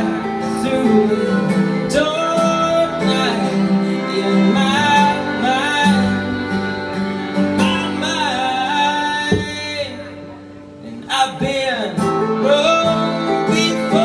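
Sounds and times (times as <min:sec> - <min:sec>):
fiddle playing sliding notes: 0:00.0 - 0:10.7
acoustic guitars strumming: 0:00.0 - 0:14.0.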